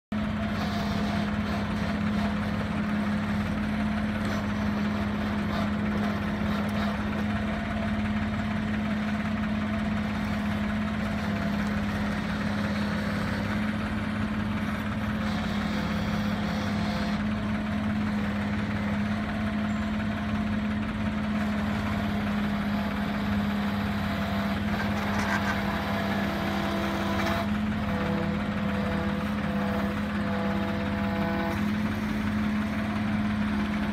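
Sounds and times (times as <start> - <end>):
diesel engine humming: 0.0 - 33.9.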